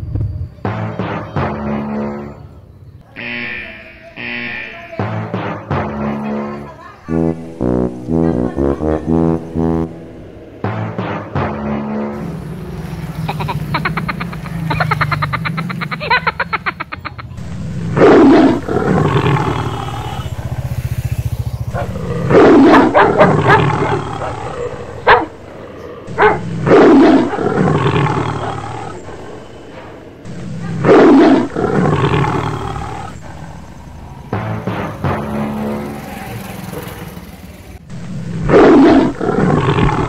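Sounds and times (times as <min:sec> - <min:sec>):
tiger roar: 0:17.8 - 0:20.6, 0:21.7 - 0:37.1, 0:38.3 - 0:40.0.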